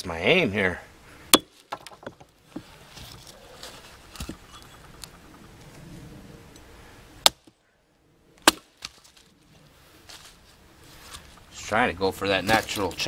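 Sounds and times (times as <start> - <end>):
hatchet chopping wood: 8.4 - 8.7.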